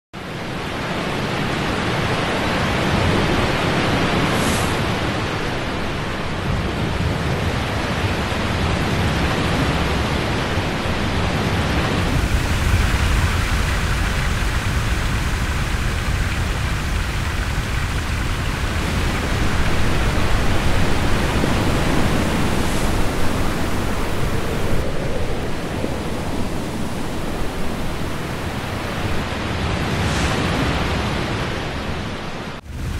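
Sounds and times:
falling water rushing: 11.8 - 29.4.

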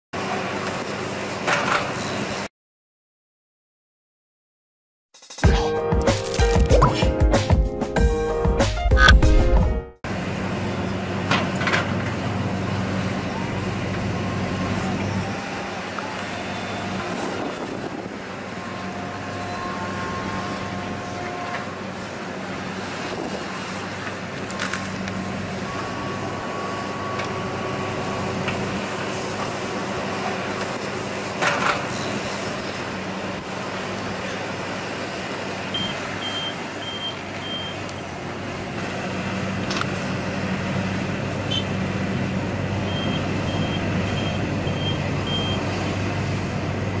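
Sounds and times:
heavy diesel machines running: 10.1 - 47.0
reversing alarm beeping: 25.5 - 28.4, 35.7 - 37.9, 42.8 - 45.7.

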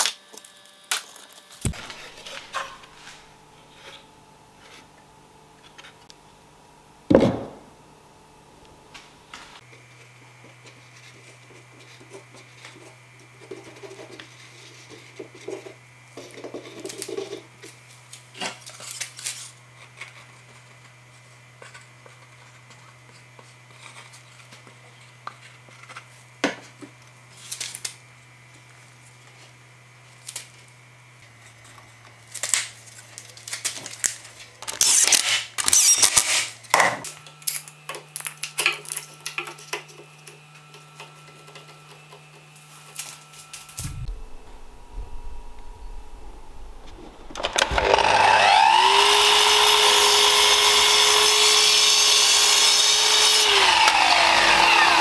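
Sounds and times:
steady low hum: 1.6 - 13.8, 42.6 - 48.5.

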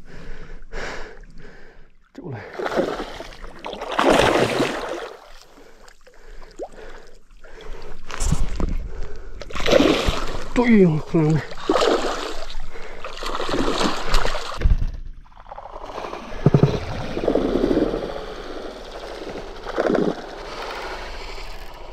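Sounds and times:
fish thrashing and splashing: 2.5 - 5.4, 11.5 - 14.6.

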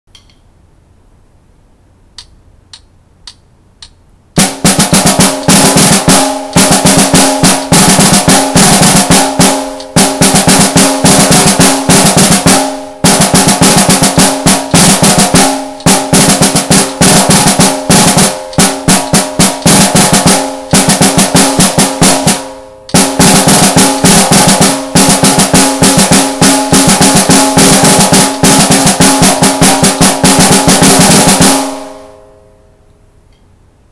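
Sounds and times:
snare drum rolls: 4.4 - 32.2.

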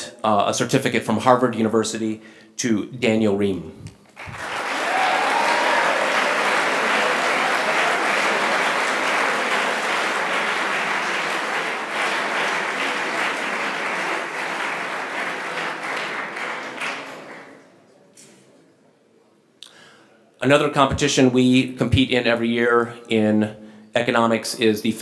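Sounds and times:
audience applauding: 4.2 - 17.6.

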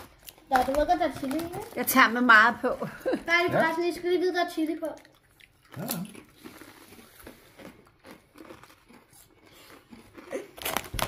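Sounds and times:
chips being crunched: 0.0 - 2.0, 5.8 - 11.0
chip bag crinkling: 0.0 - 2.6, 5.7 - 11.0.

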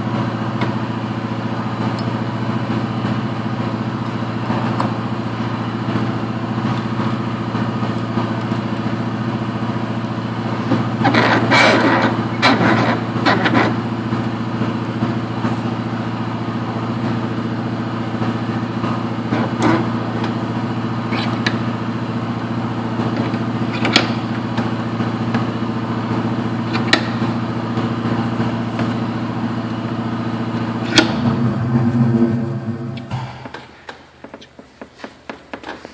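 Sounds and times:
machine droning: 0.0 - 34.9.

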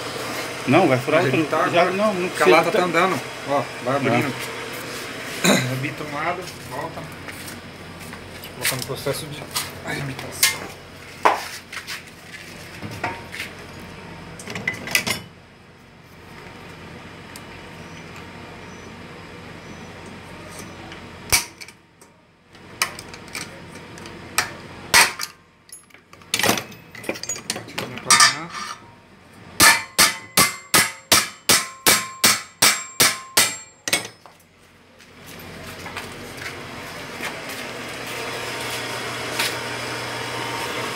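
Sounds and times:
hammer striking metal: 24.9 - 25.4, 29.6 - 34.3.

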